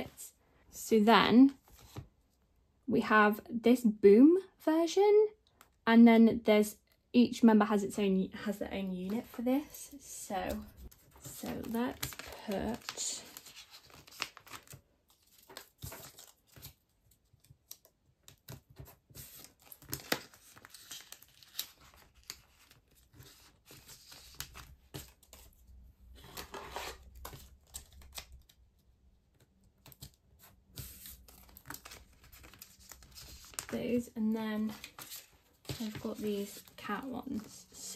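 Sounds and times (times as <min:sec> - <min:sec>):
plastic pages rustling: 0:09.0 - 0:37.9.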